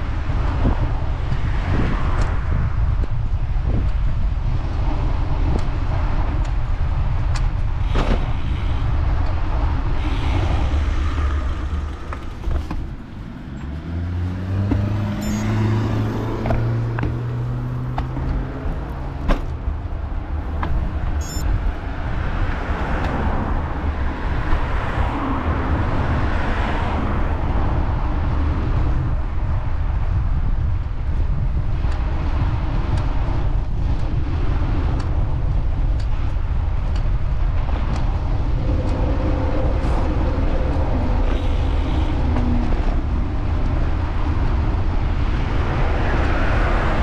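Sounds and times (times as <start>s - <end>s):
motor traffic: 0.0s - 47.0s
vehicle passing with tyre noise: 0.0s - 47.0s
wind rumbling on microphone: 0.0s - 47.0s
vehicle engine speeding up: 10.0s - 19.2s.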